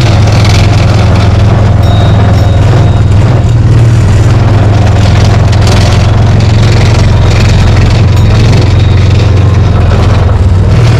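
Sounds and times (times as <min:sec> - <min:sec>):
utility vehicle engine droning: 0:00.0 - 0:10.9.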